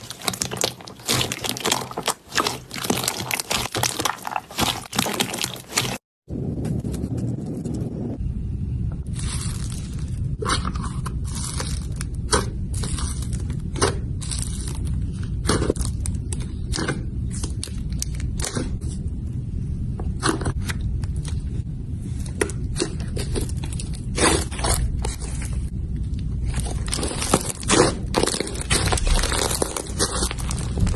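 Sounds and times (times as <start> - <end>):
slime crackling and popping: 0.0 - 6.0, 26.4 - 30.9
low rumble: 6.3 - 30.9.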